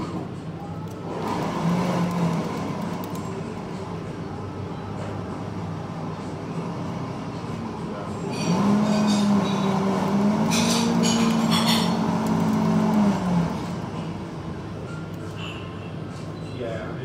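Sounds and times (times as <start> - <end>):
coffee grinder motor humming: 1.0 - 3.3, 8.3 - 14.3.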